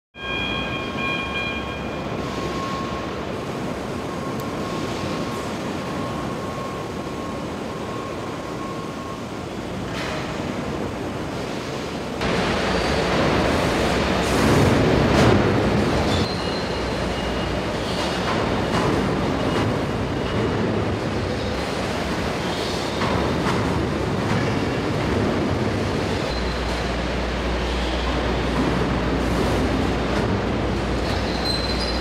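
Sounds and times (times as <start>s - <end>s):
industrial machinery rumble: 0.2s - 32.0s.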